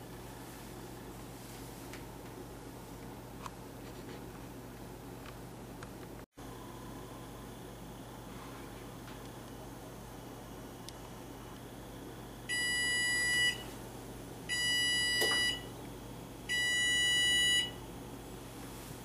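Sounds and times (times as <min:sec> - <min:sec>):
kitchen timer beeping: 0:14.5 - 0:15.7, 0:16.5 - 0:17.8.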